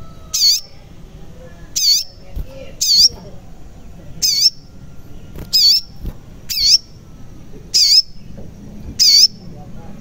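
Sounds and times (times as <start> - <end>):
bird high sharp call: 7.8 - 8.2.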